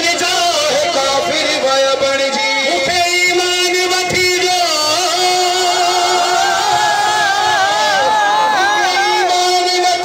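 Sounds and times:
men singing through microphones: 0:04.7 - 0:09.3.

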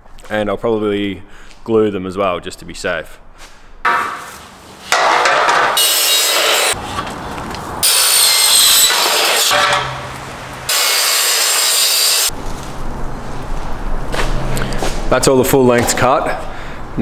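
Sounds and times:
mitre saw cutting metal: 0:04.9 - 0:06.8, 0:07.8 - 0:12.3.

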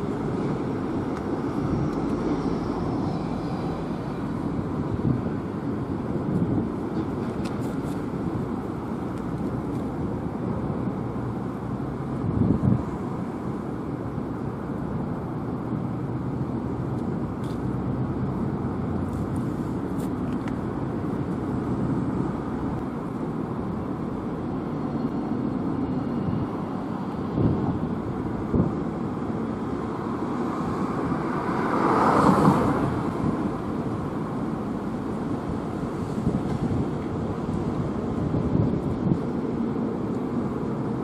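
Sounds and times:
road traffic rumble: 0:00.0 - 0:41.0
vehicle passing by: 0:30.1 - 0:33.4.

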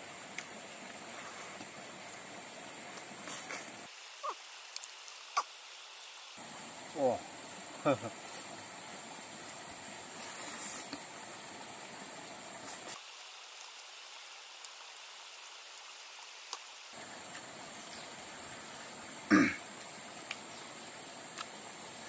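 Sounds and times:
steady hiss: 0:00.0 - 0:22.0
loud throat noise: 0:19.3 - 0:19.6.

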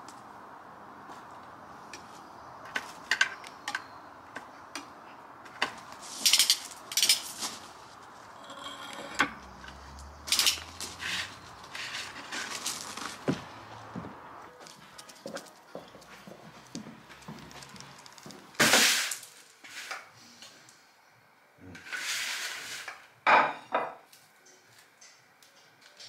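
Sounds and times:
metal tongs scraping a baking tray: 0:08.3 - 0:09.3.

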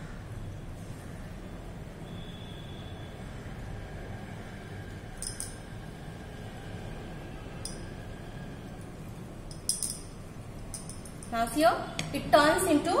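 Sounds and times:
steady low hum: 0:03.2 - 0:12.9
glass flask clinking: 0:05.2 - 0:05.7, 0:09.5 - 0:11.3.

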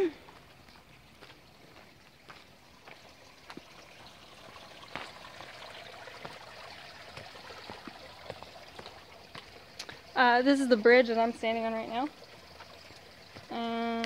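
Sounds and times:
creek water running: 0:00.0 - 0:14.0.

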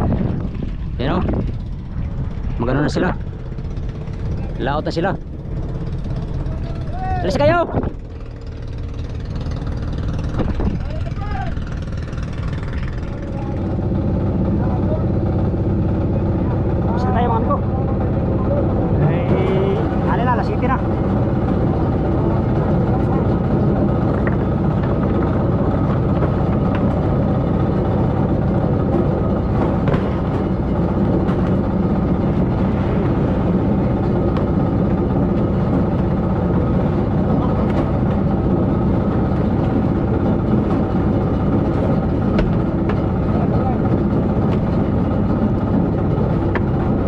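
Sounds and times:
boat engine droning: 0:00.0 - 0:47.0.

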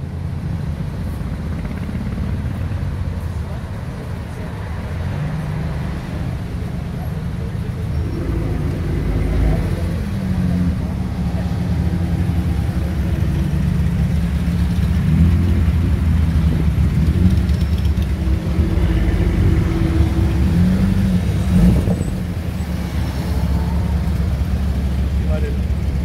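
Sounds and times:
car engine rumbling past: 0:00.6 - 0:26.0
motorcycle engine running: 0:00.8 - 0:03.4, 0:11.6 - 0:21.9.

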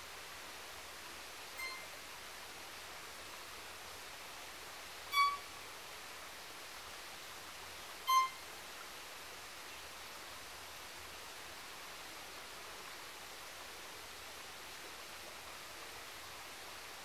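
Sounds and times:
violin high notes: 0:01.6 - 0:01.8, 0:05.1 - 0:05.4, 0:08.1 - 0:08.4.

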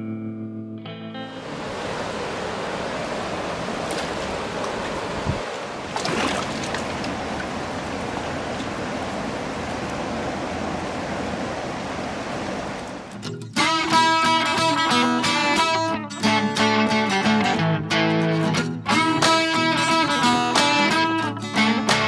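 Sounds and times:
river rushing past boulders: 0:01.4 - 0:13.2.

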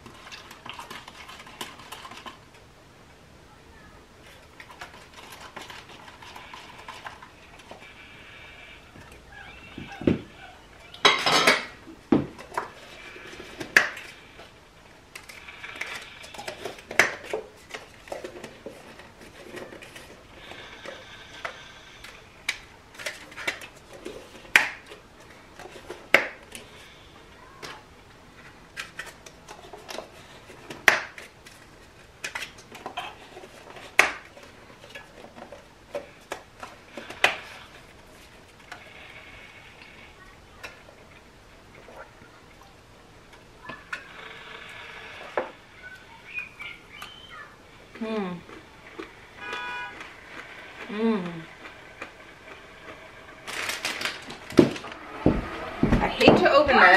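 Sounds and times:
paper cups clattering: 0:00.0 - 0:02.6, 0:04.2 - 0:08.4, 0:49.0 - 0:56.9.

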